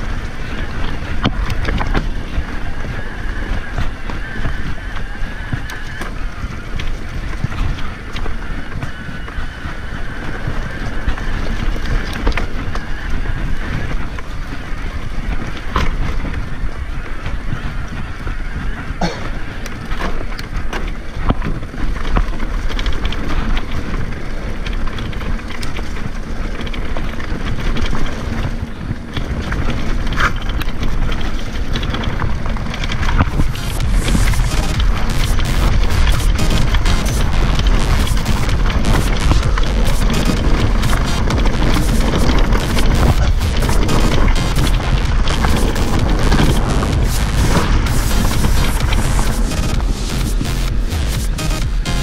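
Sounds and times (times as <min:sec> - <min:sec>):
bike knocks and rattles: 0:00.0 - 0:33.6
wind buffeting microphone: 0:00.0 - 0:43.6
tyres rumbling on dirt trail: 0:00.0 - 0:52.0.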